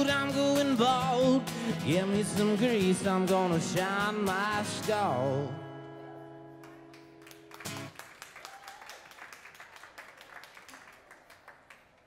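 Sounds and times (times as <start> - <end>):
light scattered clapping: 6.6 - 12.0.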